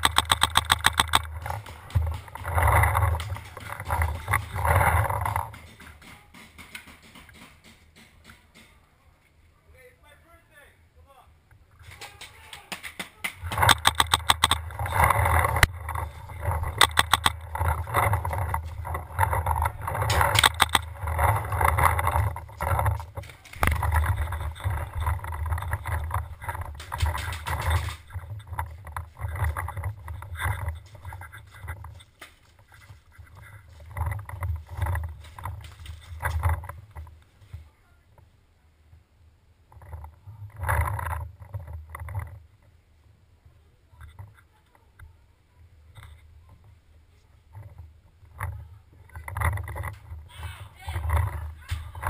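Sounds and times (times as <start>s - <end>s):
paintball markers firing: 0.0s - 4.6s, 13.4s - 15.7s, 16.4s - 18.6s, 19.8s - 22.0s, 26.5s - 28.2s
footsteps on gravel: 0.0s - 7.2s, 13.5s - 36.6s.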